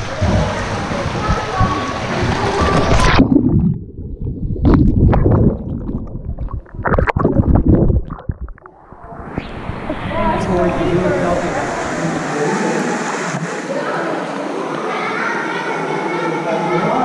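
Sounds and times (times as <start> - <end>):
muffled underwater gurgling: 0.0 - 12.3
bubbling and splashing: 0.0 - 13.8.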